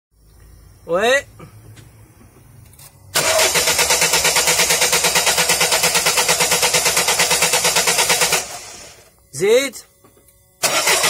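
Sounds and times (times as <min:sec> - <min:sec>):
diesel engine cranking on starter: 0:03.1 - 0:09.1, 0:10.6 - 0:11.0.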